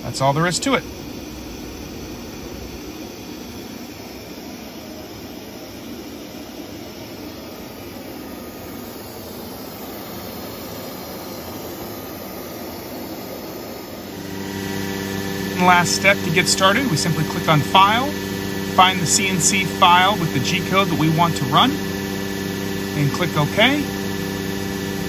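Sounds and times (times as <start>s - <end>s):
vacuum pump rushing: 13.6s - 25.0s.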